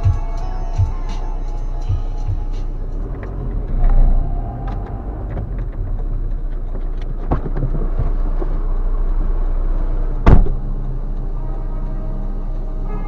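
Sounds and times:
car engine rumbling: 0.0s - 13.0s
car door slamming: 10.2s - 10.6s.

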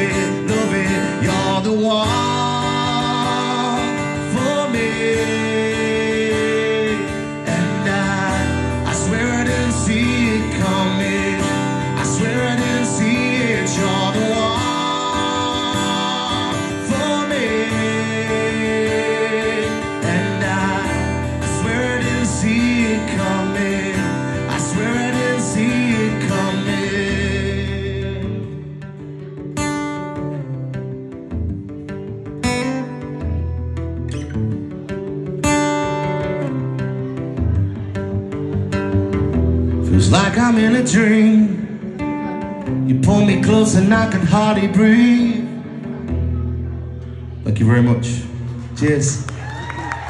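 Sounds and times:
man singing: 0.0s - 28.9s, 39.8s - 46.1s
acoustic guitar strummed: 0.0s - 49.3s.

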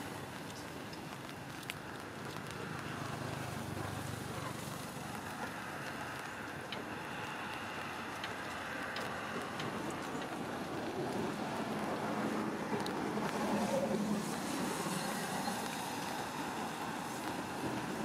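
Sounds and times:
outdoor background noise: 0.0s - 18.0s.

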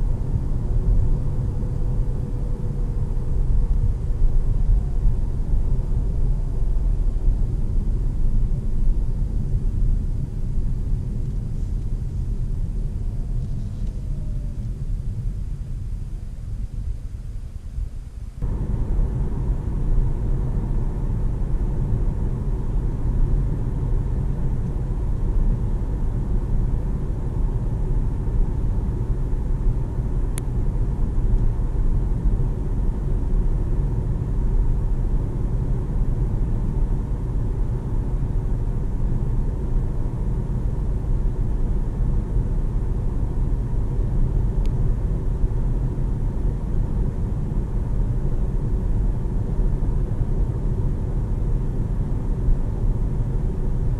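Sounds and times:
road and tyre rumble in car: 0.0s - 53.9s
car engine: 18.4s - 41.2s.

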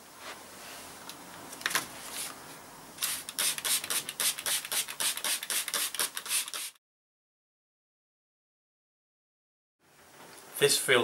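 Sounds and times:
spray bottle squirting: 3.0s - 6.8s.

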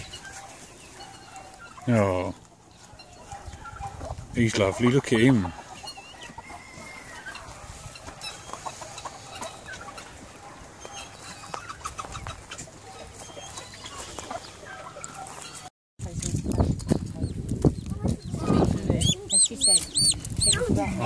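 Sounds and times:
chickens clucking: 0.0s - 15.7s, 16.4s - 21.0s.

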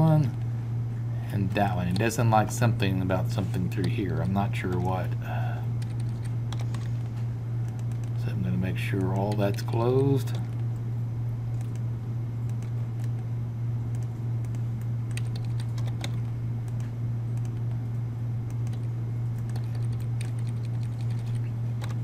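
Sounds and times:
low electrical hum: 0.0s - 22.0s
keyboard keystrokes: 13.9s - 17.7s, 18.5s - 22.0s.

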